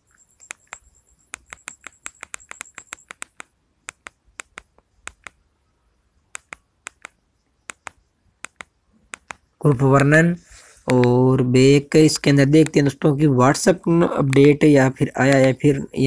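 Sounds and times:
phone keypad buttons clicking: 0:00.2 - 0:05.4, 0:06.3 - 0:10.1, 0:12.5 - 0:13.0, 0:14.0 - 0:16.0.

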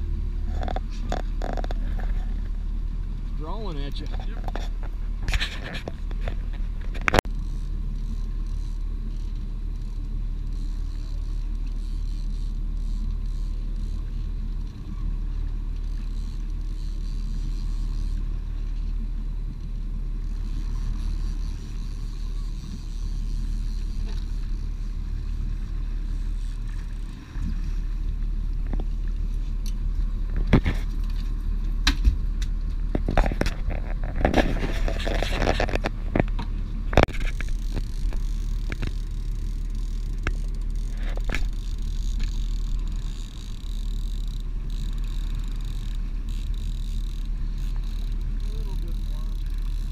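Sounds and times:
boat engine rumble: 0:00.0 - 0:49.9
sharp clicks and knocks: 0:04.0 - 0:07.3, 0:31.8 - 0:49.9.

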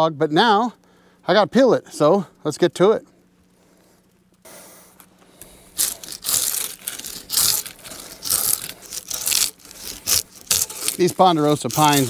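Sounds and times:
draw knife scraping bark off log: 0:08.0 - 0:12.0.

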